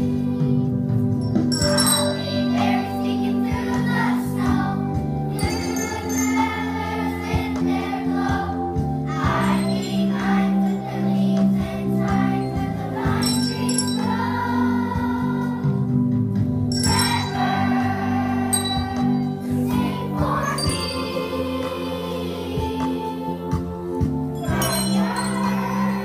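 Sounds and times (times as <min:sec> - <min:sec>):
children's choir singing: 0:00.0 - 0:00.8, 0:01.4 - 0:16.0, 0:16.8 - 0:23.8, 0:24.4 - 0:26.0
instrumental accompaniment: 0:00.4 - 0:26.0
small bells shaking: 0:01.2 - 0:02.6, 0:05.4 - 0:07.4, 0:09.3 - 0:10.8, 0:13.1 - 0:14.4, 0:16.7 - 0:17.7, 0:18.5 - 0:19.4, 0:20.4 - 0:21.4, 0:24.4 - 0:26.0
triangles struck: 0:01.2 - 0:02.6, 0:05.4 - 0:06.8, 0:13.1 - 0:14.4, 0:16.7 - 0:17.6, 0:18.5 - 0:19.3, 0:24.4 - 0:25.8.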